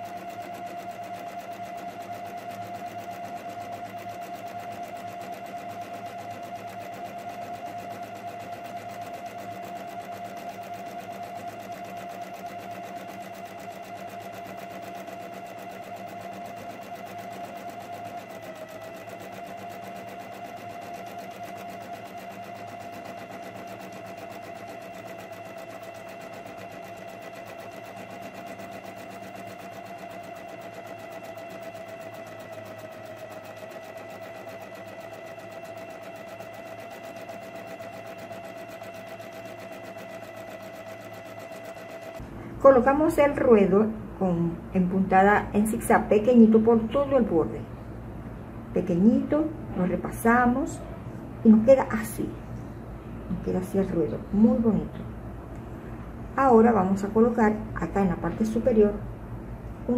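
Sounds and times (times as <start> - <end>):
electric sewing machine running: 0.0 - 44.0.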